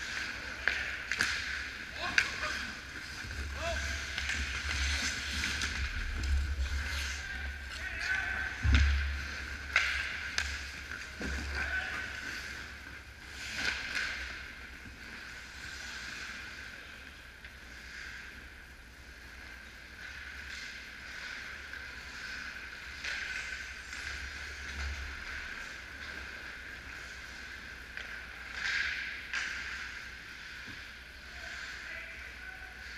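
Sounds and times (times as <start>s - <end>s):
hockey sticks and puck knocking: 0.0s - 7.0s, 7.8s - 12.0s
skates scraping ice: 0.0s - 32.9s
steady hum: 0.0s - 32.9s.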